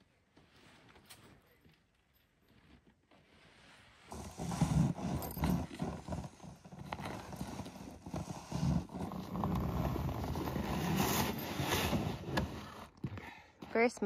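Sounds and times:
plastic sled scraping over snow: 3.5s - 12.9s.

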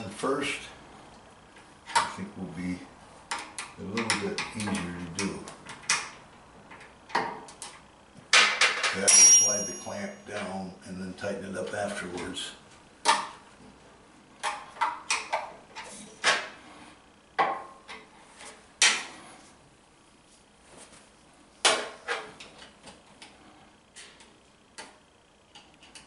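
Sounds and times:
metal hand tools clinking: 9.0s - 10.5s.

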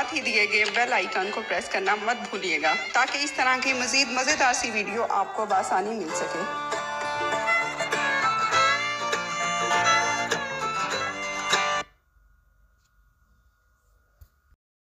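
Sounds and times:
plucked instrumental music: 5.8s - 11.9s.

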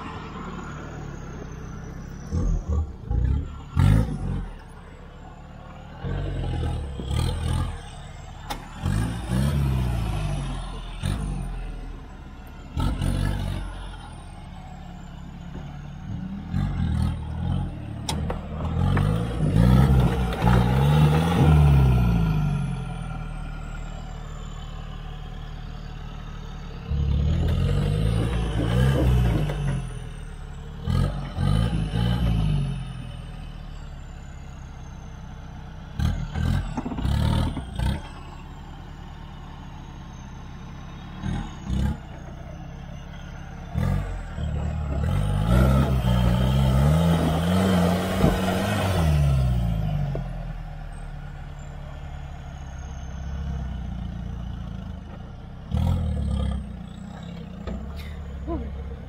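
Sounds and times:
diesel engine revving: 0.0s - 59.0s.

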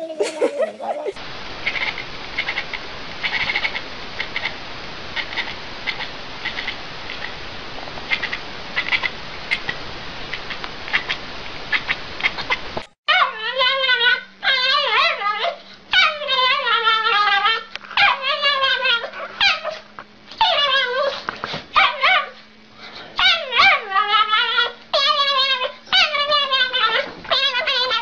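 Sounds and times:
small dog howling: 13.1s - 19.8s, 20.4s - 22.4s, 23.2s - 28.0s.

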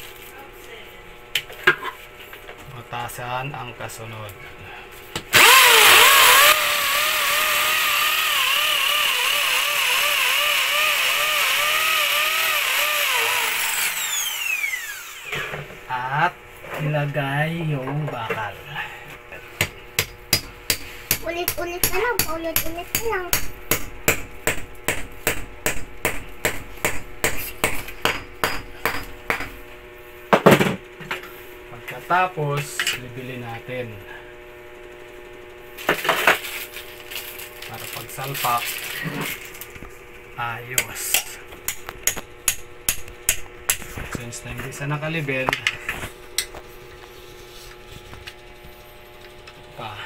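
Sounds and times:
hammer drill boring into wall: 5.3s - 15.4s.

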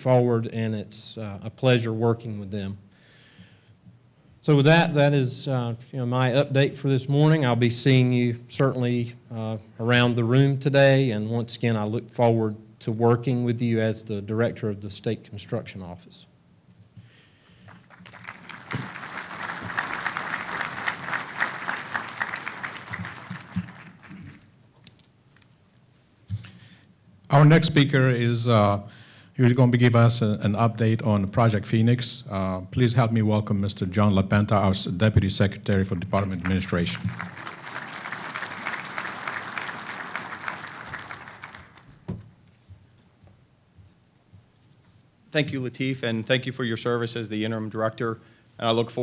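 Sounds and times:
audience applauding: 17.6s - 24.5s, 36.2s - 42.1s.

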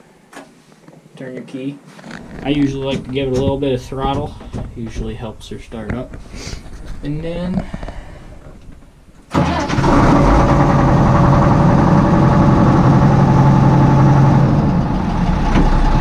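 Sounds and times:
tractor diesel engine starting: 9.3s - 16.0s.

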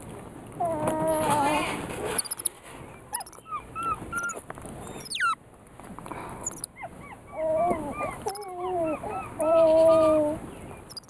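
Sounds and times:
monkey sweeping squeak: 2.1s - 2.5s, 3.1s - 3.4s, 4.2s - 5.4s, 6.4s - 6.7s
monkey chirping: 2.2s - 2.5s, 3.1s - 5.4s, 6.4s - 6.7s, 8.2s - 8.6s.

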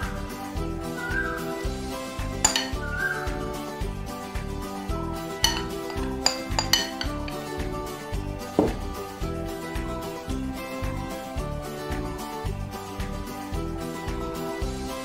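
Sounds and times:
background music with beat: 0.0s - 15.0s
metal spoon clinking glass bowl: 2.4s - 2.8s, 5.4s - 7.5s.

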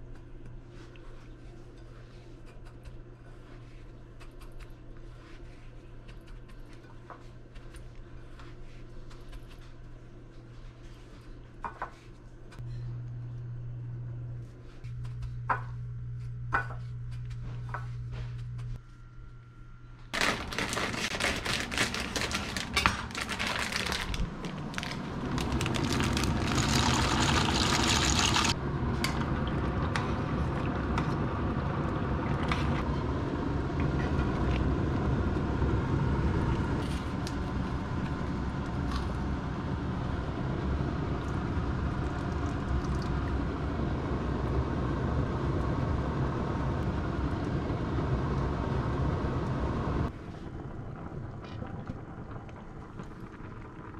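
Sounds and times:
knife slitting plastic packet: 20.2s - 28.5s
pots boiling: 20.2s - 35.5s, 36.4s - 53.9s.

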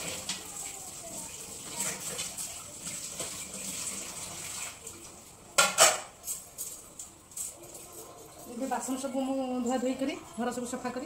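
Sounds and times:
running water: 0.0s - 11.0s
dishes clattering in sink: 5.5s - 8.7s.

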